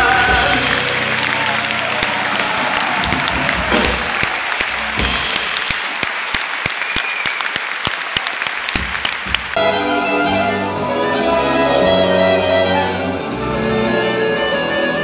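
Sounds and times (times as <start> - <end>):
audience applauding: 0.0 - 9.7
orchestra playing sustained chords: 9.6 - 15.0.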